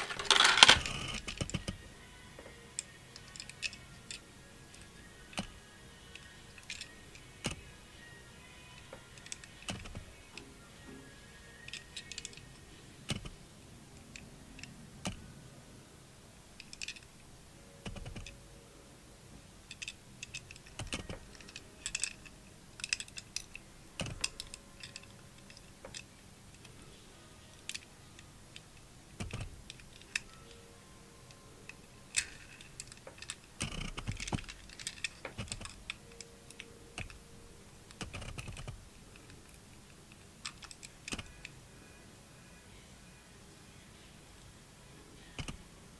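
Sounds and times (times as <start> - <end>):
fingers clicking on toy car: 0.0 - 1.8, 8.7 - 10.4, 11.5 - 13.4, 17.8 - 18.4, 19.7 - 26.7, 28.5 - 30.5, 31.3 - 37.3, 37.9 - 41.6, 45.3 - 45.6
faint music: 0.0 - 45.9.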